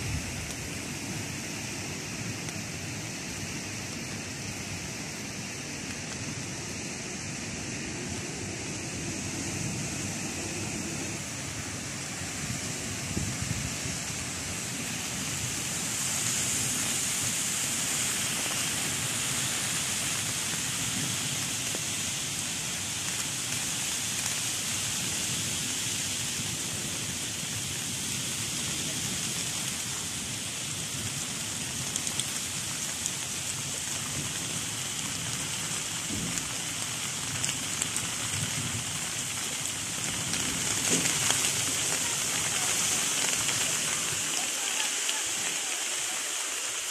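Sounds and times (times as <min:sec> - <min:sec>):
heavy rain hiss: 0:00.0 - 0:46.9
sharp raindrop hits: 0:28.2 - 0:45.9.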